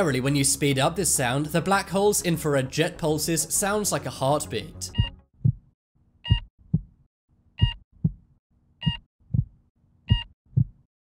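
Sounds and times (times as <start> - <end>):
low double thumps: 5.0 - 5.7, 6.3 - 7.0, 7.6 - 8.3, 8.9 - 9.6, 10.2 - 10.8.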